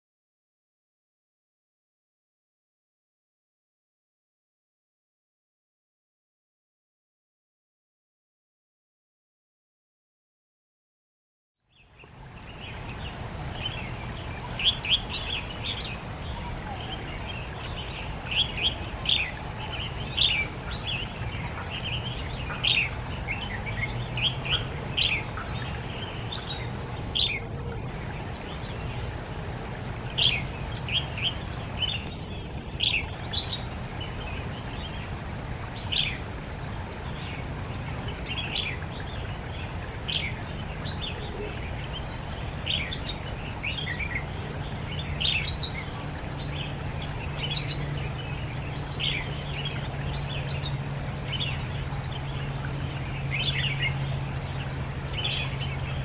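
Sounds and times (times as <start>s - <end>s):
steady low background noise: 11.7s - 56.0s.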